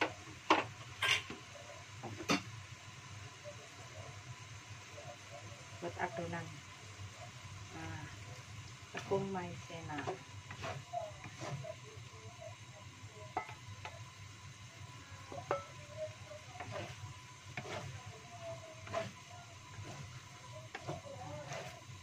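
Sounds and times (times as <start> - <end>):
wooden spatula scraping wok: 0.0 - 1.4, 7.7 - 14.2, 14.8 - 22.0
low sizzle: 0.0 - 22.0.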